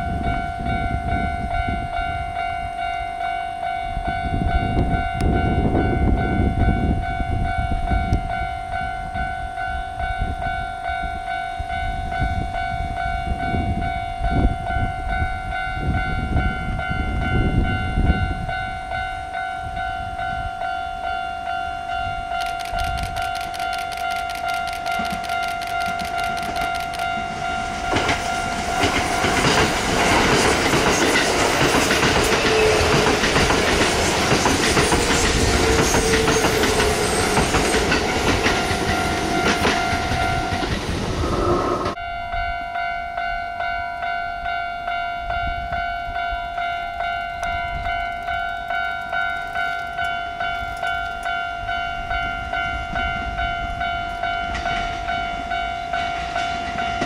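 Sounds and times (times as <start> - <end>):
crossing bell ringing: 0.0 - 40.9, 41.9 - 57.0
train wheels clacking on rail joints: 22.4 - 42.0, 54.1 - 57.0.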